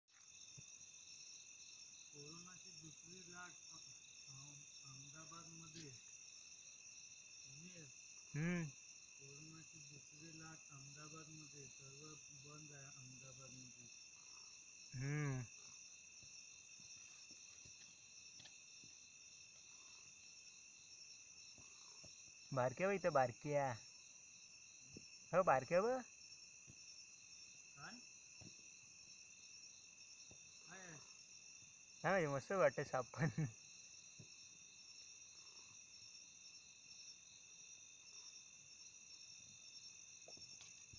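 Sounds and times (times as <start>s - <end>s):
insects chirring: 0.1s - 40.9s
person's short vocal sound: 8.4s - 8.7s, 15.0s - 15.5s.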